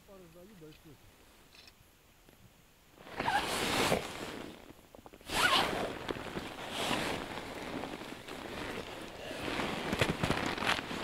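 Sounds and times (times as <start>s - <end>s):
rustling: 3.0s - 11.0s.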